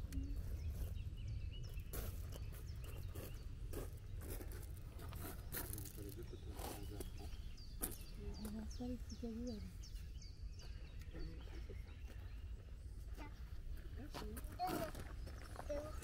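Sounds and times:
small birds chirping: 0:00.0 - 0:16.0
pushchair wheels on gravel: 0:00.3 - 0:08.0, 0:13.7 - 0:16.0
footsteps on gravel: 0:00.3 - 0:08.8, 0:12.0 - 0:16.0.

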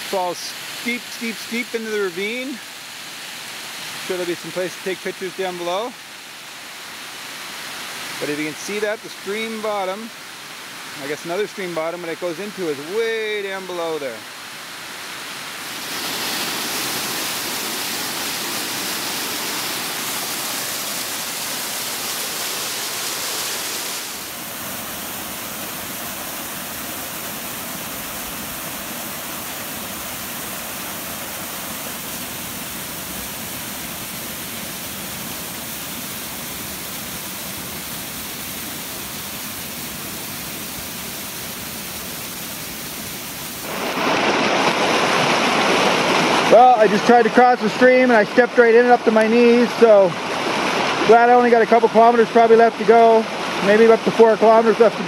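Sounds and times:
waterfall rushing: 0:00.0 - 0:55.0
small cascade spilling into pool: 0:15.6 - 0:55.0.

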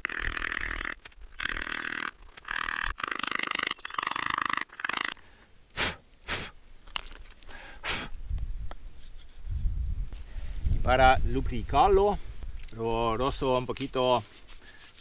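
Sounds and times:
stone grinding against stone: 0:09.0 - 0:09.7, 0:13.8 - 0:15.0.

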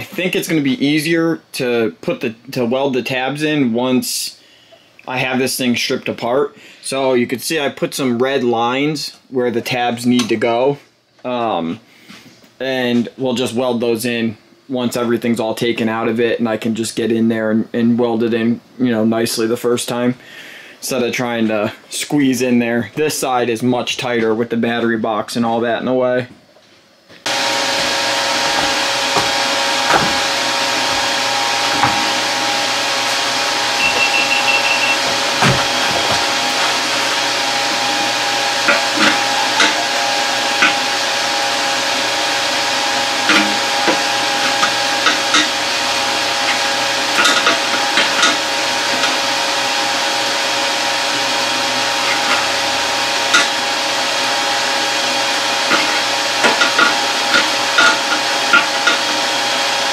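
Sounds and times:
fan whooshing and humming: 0:27.2 - 0:59.9.

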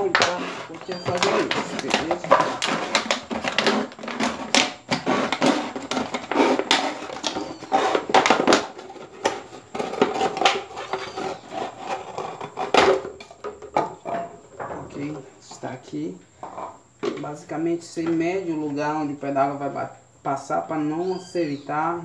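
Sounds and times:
knife cutting plastic bottle: 0:00.0 - 0:14.2
plastic cracking: 0:00.0 - 0:14.3.

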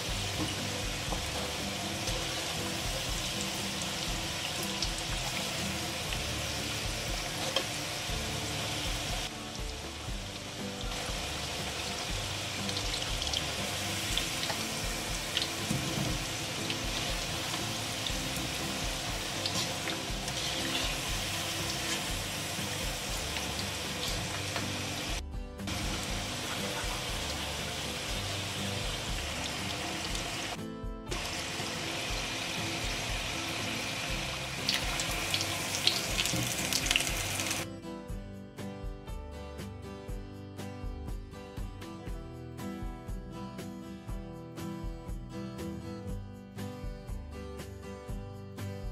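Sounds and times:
potatoes sizzling in hot oil: 0:00.0 - 0:37.6.

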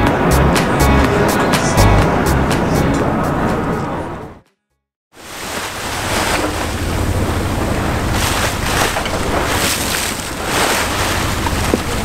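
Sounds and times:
water splashing along hull: 0:05.2 - 0:12.0.

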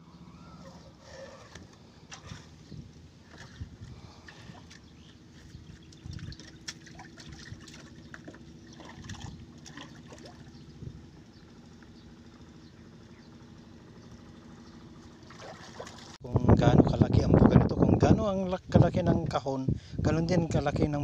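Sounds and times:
low steady hum: 0:00.0 - 0:21.0
water splashing and trickling: 0:02.0 - 0:11.0, 0:15.0 - 0:16.2.

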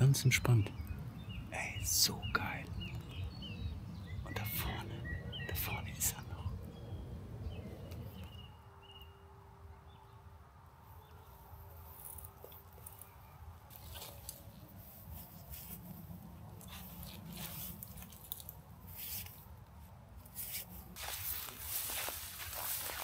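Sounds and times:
rustling in dry leaves: 0:10.9 - 0:23.0.

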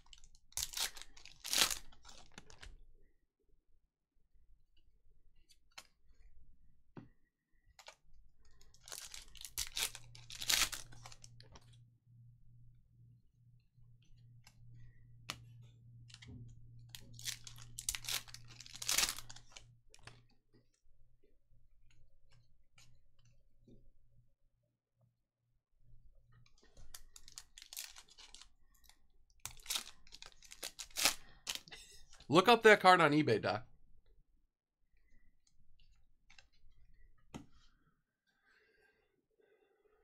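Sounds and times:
wrappers tearing and crinkling: 0:00.0 - 0:02.6, 0:08.6 - 0:11.4, 0:17.0 - 0:19.6, 0:26.8 - 0:28.5, 0:29.5 - 0:31.7.

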